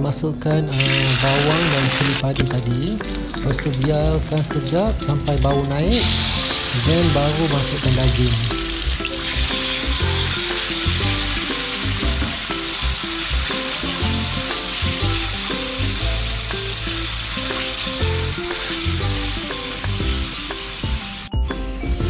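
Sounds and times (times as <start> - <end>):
meat sizzling in a wok: 0.8 - 2.2, 6.0 - 21.4.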